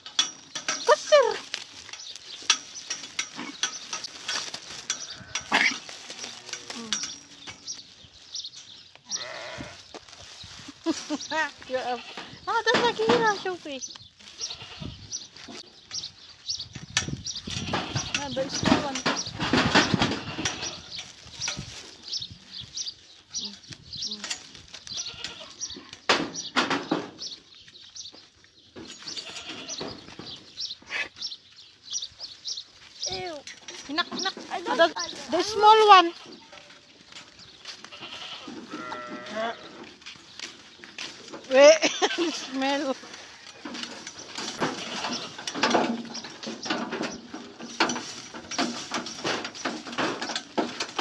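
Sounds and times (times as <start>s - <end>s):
goats crunching dry bread: 0.0s - 51.0s
goats bleating: 4.7s - 7.5s, 9.0s - 10.0s, 11.0s - 13.5s, 14.2s - 15.0s, 17.4s - 18.9s, 19.8s - 21.0s, 25.0s - 26.0s, 29.1s - 30.0s, 33.1s - 40.0s, 41.5s - 43.8s, 44.4s - 45.6s.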